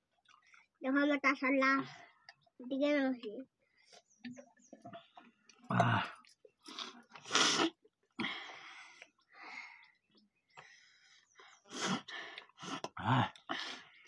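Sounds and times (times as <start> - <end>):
slurps and gulps: 4.8 - 8.4, 11.7 - 14.0.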